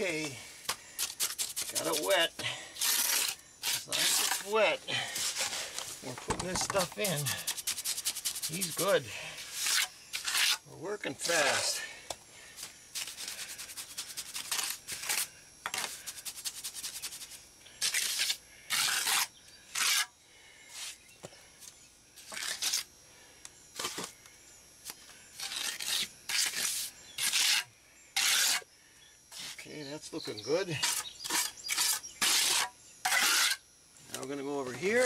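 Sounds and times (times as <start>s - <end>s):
trowel scraping cement: 0.0s - 5.8s, 6.7s - 10.6s, 13.0s - 20.1s, 22.2s - 22.9s, 23.8s - 24.1s, 25.4s - 28.6s, 30.8s - 33.6s.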